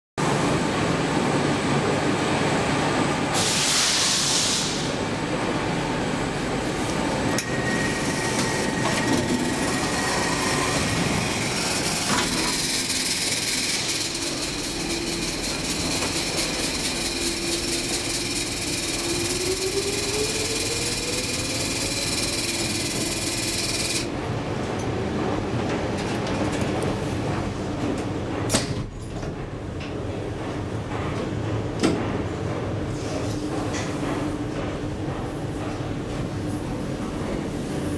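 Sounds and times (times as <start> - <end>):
continuous rail rumble: 0.2 - 37.9
air hiss: 3.4 - 5.0.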